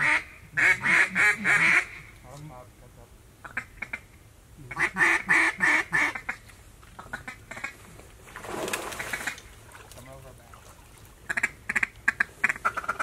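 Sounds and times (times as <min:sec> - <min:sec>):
duck quacking: 0:00.0 - 0:02.1, 0:04.7 - 0:06.4, 0:11.3 - 0:13.0.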